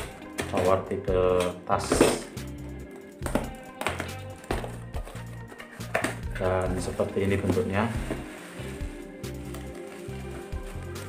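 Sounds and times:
background music with bass line: 0:00.0 - 0:11.0
cardboard parcel being torn open: 0:06.7 - 0:11.0.

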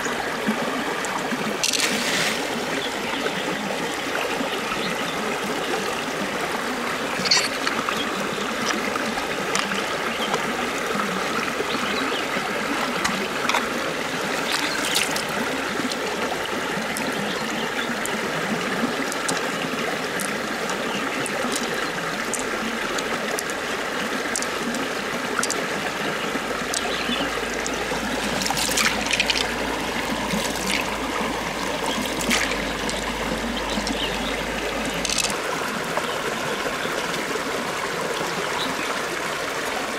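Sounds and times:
water trickling: 0:00.0 - 0:39.9
wet handling noises: 0:07.2 - 0:08.9, 0:13.0 - 0:15.4, 0:26.6 - 0:34.1.

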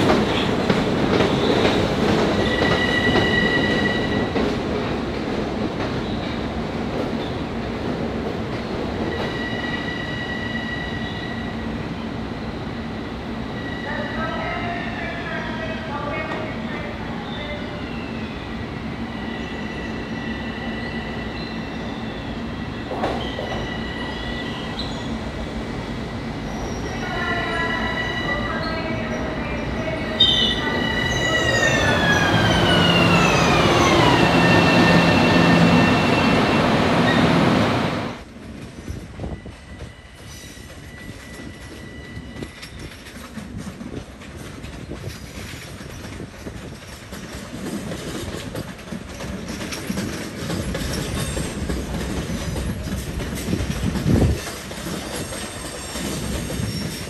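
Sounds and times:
rail and wheel rumble: 0:00.0 - 0:57.0
train high whining tones: 0:01.3 - 0:04.5, 0:09.0 - 0:11.8, 0:17.2 - 0:38.2, 0:39.2 - 0:43.1.

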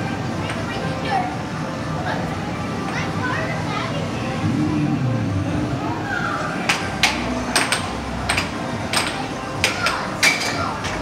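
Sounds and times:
arcade background noise: 0:00.0 - 0:11.0
air hockey puck clacks: 0:06.7 - 0:11.0.

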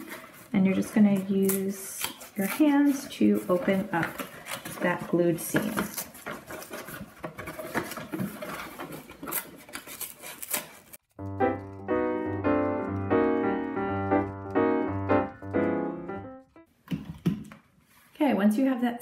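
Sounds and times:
cardboard tearing and crackling: 0:00.0 - 0:11.8
keyboard music with bass: 0:11.1 - 0:16.7.

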